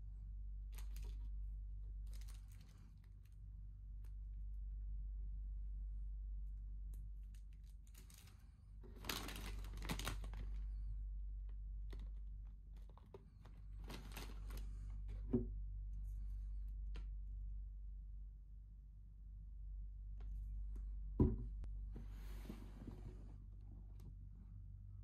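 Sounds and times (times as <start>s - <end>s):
low steady hum: 0.0s - 25.0s
plastic snack bag crinkling: 0.7s - 1.3s, 2.0s - 3.4s, 7.2s - 10.7s, 12.8s - 14.9s.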